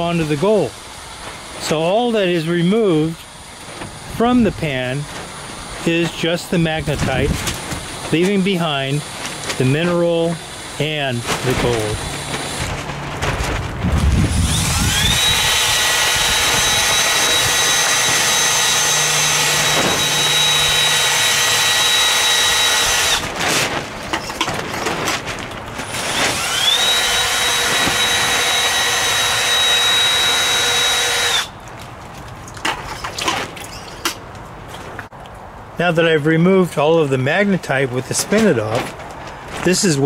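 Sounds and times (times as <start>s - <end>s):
small electric motor whining: 14.2s - 23.3s, 25.8s - 31.6s.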